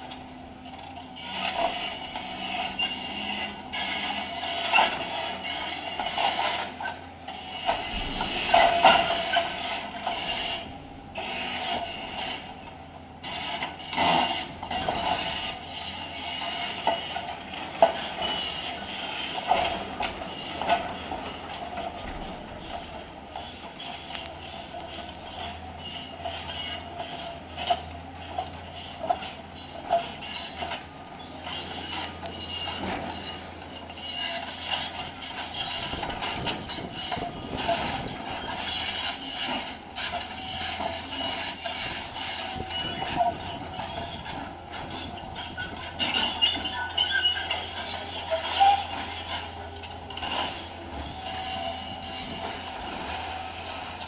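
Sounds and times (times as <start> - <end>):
excavator engine hum: 0.0 - 54.0
scraping and grinding of concrete: 31.5 - 54.0.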